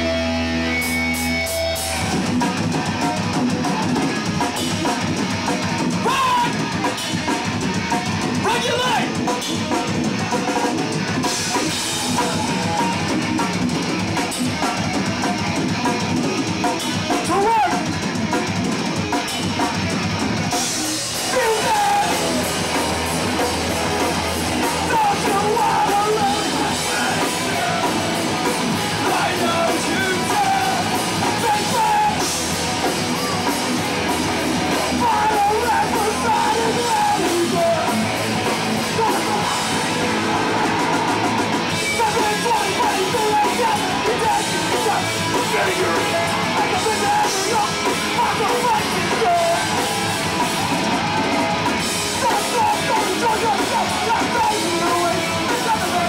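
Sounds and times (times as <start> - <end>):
punk band playing: 0.0 - 56.0
shouted vocal: 6.0 - 6.7, 21.2 - 22.7, 24.6 - 33.6, 34.7 - 56.0.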